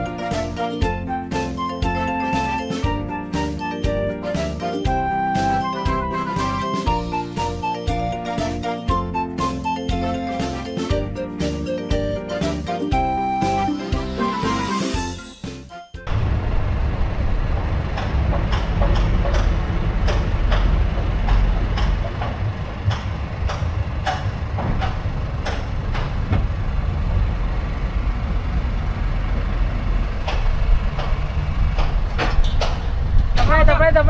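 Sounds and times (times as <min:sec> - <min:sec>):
engine running low: 0:16.0 - 0:34.0.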